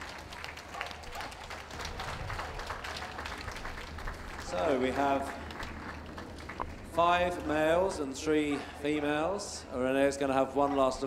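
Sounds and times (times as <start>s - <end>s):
crowd clapping: 0.0s - 8.0s.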